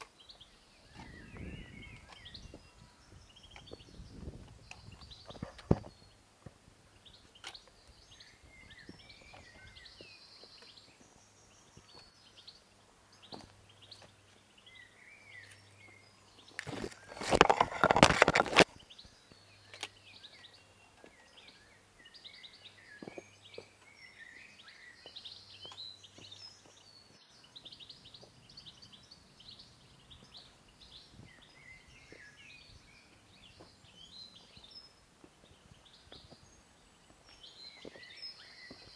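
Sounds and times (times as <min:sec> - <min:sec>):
boots and trekking pole tapping rock: 0:00.0 - 0:12.5, 0:13.1 - 0:14.5, 0:15.3 - 0:21.6, 0:22.6 - 0:28.4, 0:30.1 - 0:38.9
small birds chirping: 0:00.0 - 0:38.9
scraping rustle near microphone: 0:16.5 - 0:18.7.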